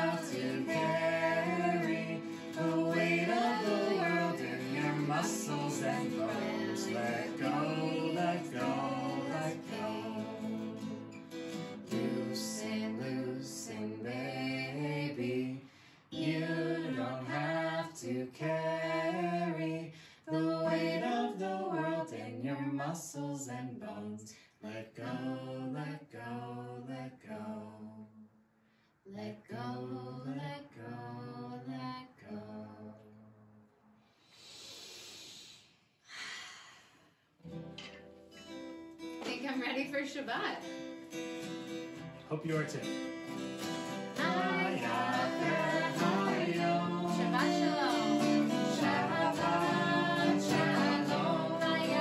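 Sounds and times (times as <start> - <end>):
voices singing gentle melody: 0.0 - 28.1, 29.1 - 33.0, 42.3 - 52.0
soft breathy exhales: 34.0 - 37.1.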